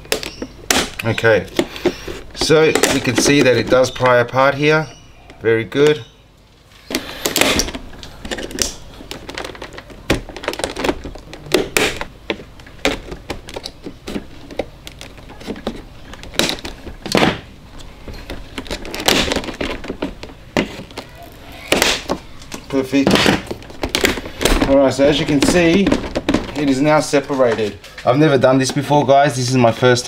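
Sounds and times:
plastic trim clicking and cracking: 6.9s - 27.8s.

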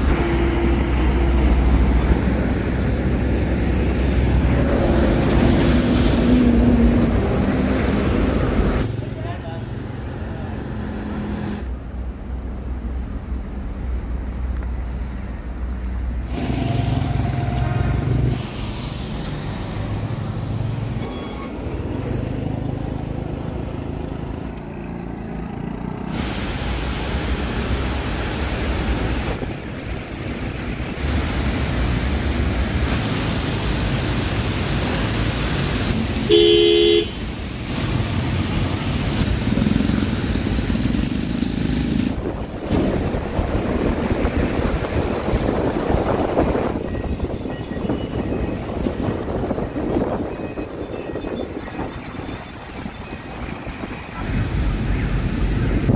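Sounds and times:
traffic on wet road: 0.0s - 55.9s
wind rumbling on microphone: 42.0s - 55.9s.

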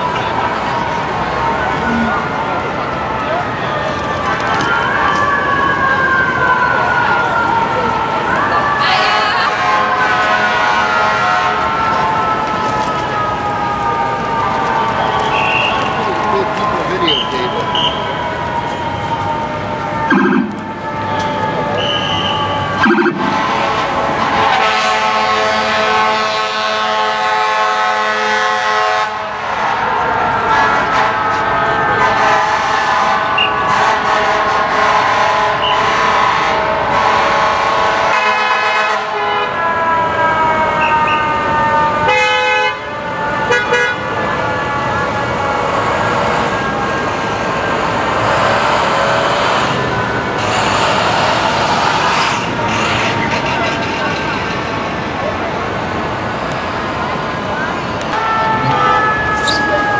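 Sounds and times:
siren wailing: 0.0s - 26.4s, 39.4s - 53.5s, 56.3s - 59.9s
city traffic: 0.0s - 59.9s
fire truck air horn blasts: 8.8s - 12.2s, 15.1s - 16.1s, 17.0s - 18.2s, 20.1s - 44.2s, 58.1s - 59.9s.

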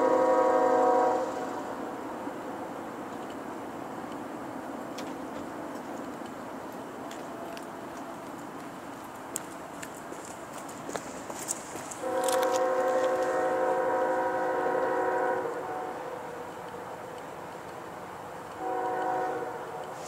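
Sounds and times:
locomotive air horn blasts: 0.0s - 1.8s, 11.9s - 16.3s, 18.6s - 20.0s.

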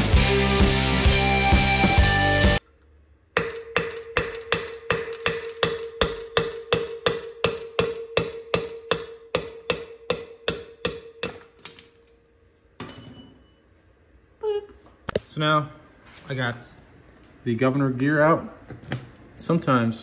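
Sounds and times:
hammer striking steel punch: 3.4s - 11.8s
metallic clink: 12.8s - 13.6s.

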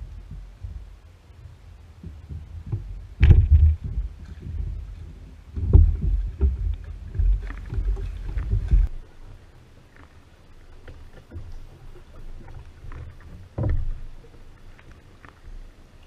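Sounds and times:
low rumble: 0.0s - 9.8s
oar strokes thumping and splashing: 0.0s - 16.0s.

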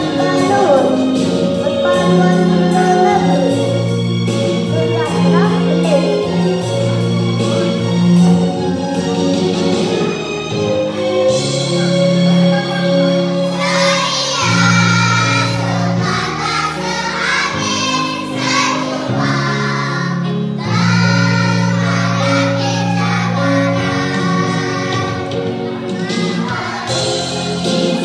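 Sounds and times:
instrumental accompaniment: 0.0s - 28.0s
children's choir singing: 7.6s - 28.0s.

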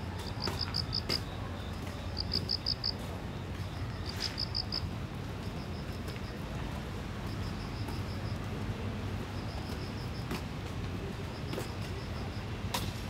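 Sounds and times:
city traffic hum: 0.0s - 13.0s
cricket chirping: 0.2s - 3.0s, 3.7s - 4.9s.

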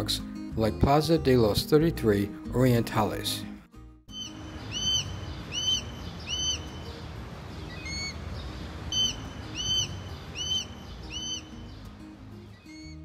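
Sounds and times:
bird calling: 4.1s - 11.9s.

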